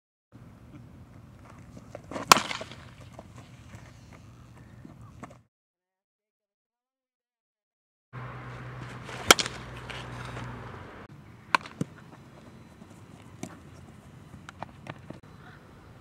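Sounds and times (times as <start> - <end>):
bat cracking against ball: 1.8 - 3.5, 8.5 - 10.7, 11.5 - 12.1
ball popping into glove: 11.5 - 12.0.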